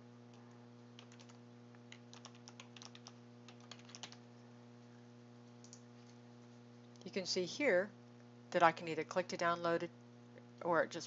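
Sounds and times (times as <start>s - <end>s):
steady low hum: 0.0s - 11.0s
typing on computer keyboard: 1.0s - 4.2s.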